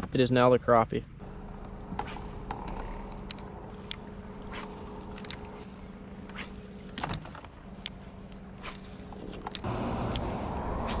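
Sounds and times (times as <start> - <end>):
electric trolling motor humming: 1.2 - 11.0
sharp clicks: 4.6 - 5.6, 8.6 - 10.3.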